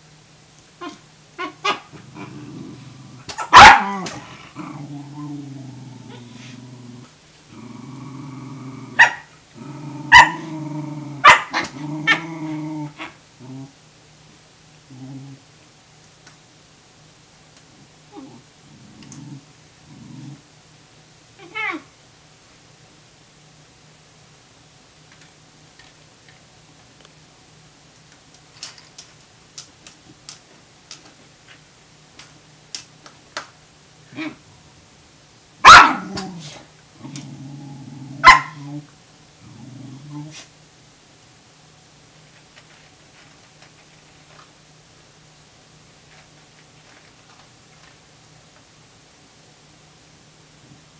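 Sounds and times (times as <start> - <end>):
faint low hum: 0.0 - 50.9
dog growling: 0.8 - 13.8, 14.9 - 15.5, 18.1 - 20.5, 35.7 - 40.5
dog barking sharply: 3.4 - 3.9, 11.2 - 11.7, 35.7 - 36.0, 38.2 - 38.5.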